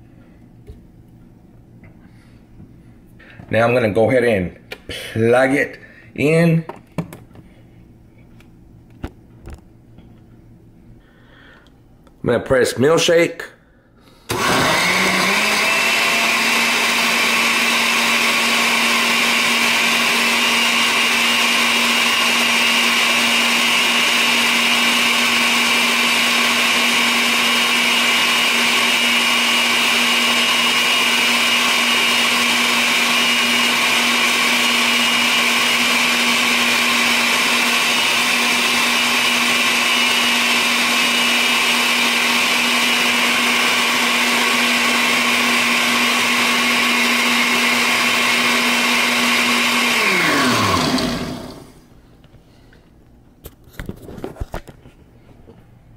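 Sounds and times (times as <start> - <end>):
blender motor running: 14.3 - 51.8.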